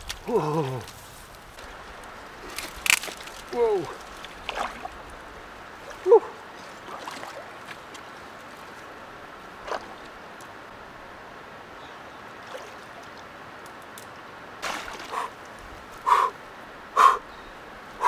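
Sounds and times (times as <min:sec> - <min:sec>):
water sloshing and splashing: 0:01.6 - 0:10.6, 0:12.4 - 0:13.4, 0:14.6 - 0:16.1.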